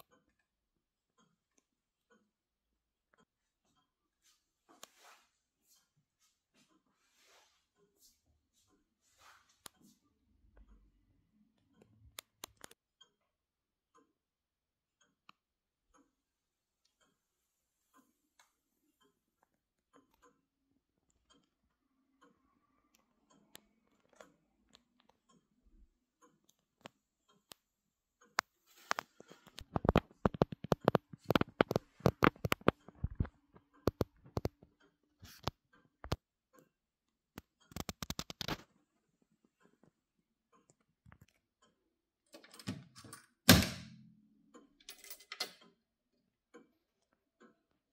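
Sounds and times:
clock ticking faintly: 0:11.6 - 0:38.6
rapid irregular clicks and knocks: 0:23.2 - 0:43.5.

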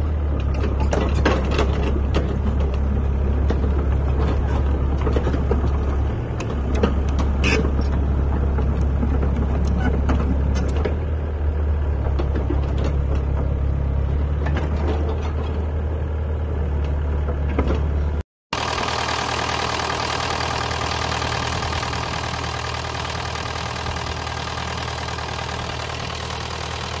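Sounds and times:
diesel engine idling clatter: 0:00.0 - 0:27.0
excavator diesel engine running: 0:00.0 - 0:27.0
steel tracks clanking over dirt: 0:00.2 - 0:11.2, 0:11.8 - 0:15.9.

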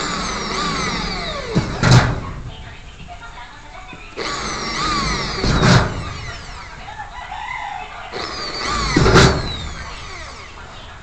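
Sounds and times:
power drill boring ceiling panel: 0:00.0 - 0:02.2, 0:04.2 - 0:06.9, 0:08.1 - 0:10.8.

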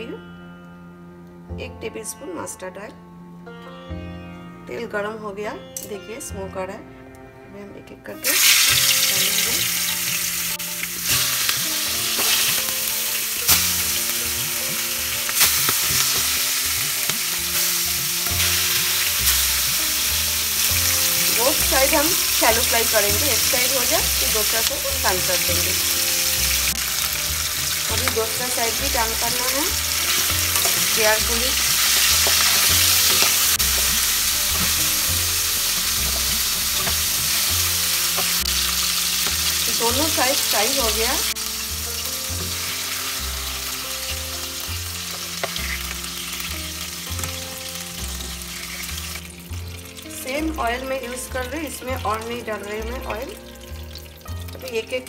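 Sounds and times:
fish sizzling in hot oil: 0:08.2 - 0:55.0.

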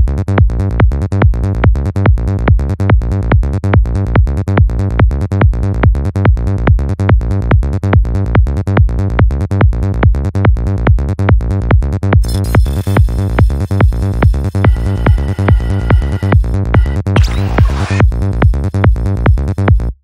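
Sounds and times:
psychedelic trance music: 0:12.2 - 0:19.9.

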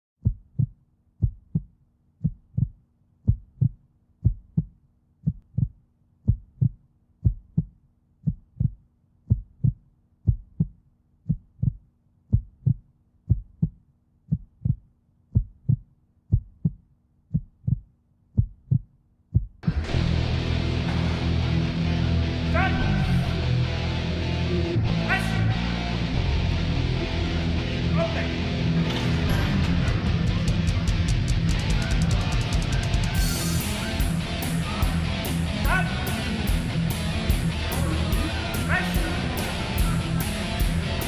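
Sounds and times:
heartbeat double thump: 0:00.2 - 0:20.0.

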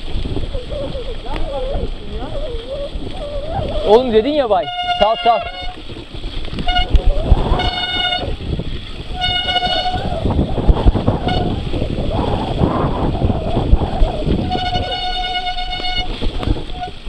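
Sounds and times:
bike rumbling and rattling: 0:00.0 - 0:17.0
bike disc brakes squealing: 0:02.2 - 0:08.4, 0:09.0 - 0:10.3, 0:13.0 - 0:17.0.

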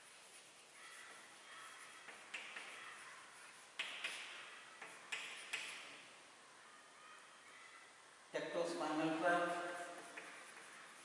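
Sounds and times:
chalk scratching on blackboard: 0:00.0 - 0:06.0, 0:09.4 - 0:11.0
chalk tapping on board: 0:00.0 - 0:06.0, 0:09.8 - 0:11.0.

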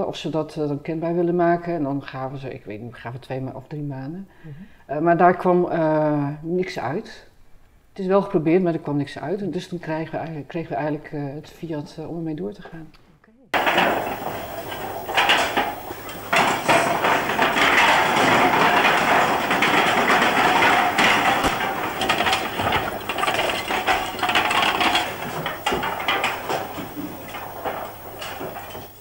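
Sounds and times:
roof tiles clattering: 0:13.6 - 0:29.0.

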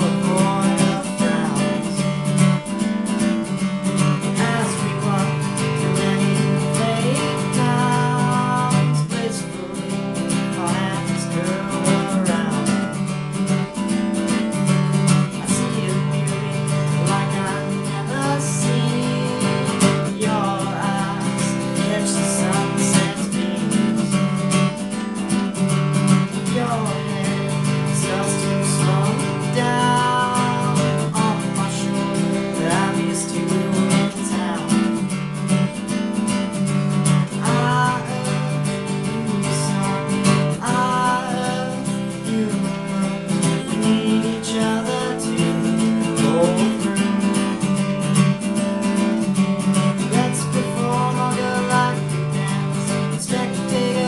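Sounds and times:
acoustic guitar strumming: 0:00.0 - 0:54.0
man singing: 0:00.0 - 0:54.0.

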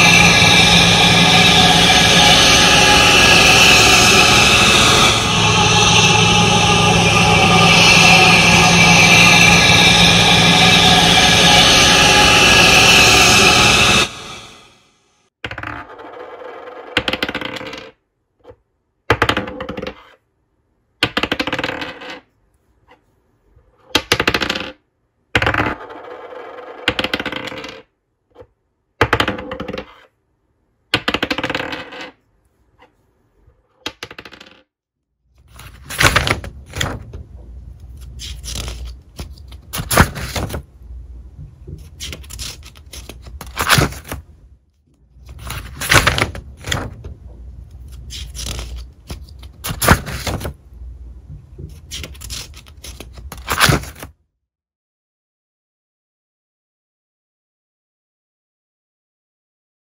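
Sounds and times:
coin spinning and rattling: 0:21.4 - 0:22.2, 0:33.9 - 0:34.6
notebook pages flipping: 0:37.9 - 0:40.6, 0:41.8 - 0:44.2, 0:47.8 - 0:50.5, 0:51.7 - 0:54.1.

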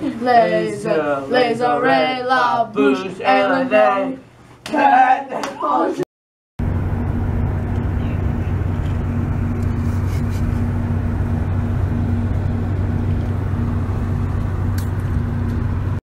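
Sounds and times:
airliner cabin drone: 0:06.6 - 0:16.0.

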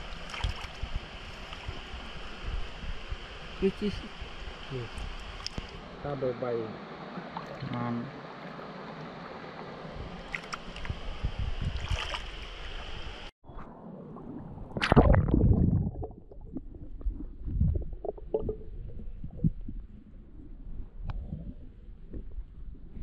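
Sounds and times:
water sloshing: 0:00.0 - 0:00.8, 0:07.0 - 0:11.0, 0:11.7 - 0:12.4
stream water rushing: 0:00.0 - 0:13.3.

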